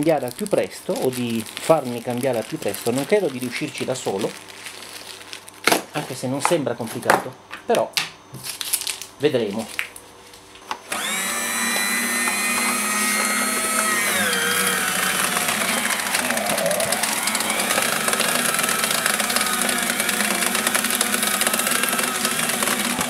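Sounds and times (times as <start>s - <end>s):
paper shredder cutting paper: 0.0s - 5.4s, 10.8s - 23.0s.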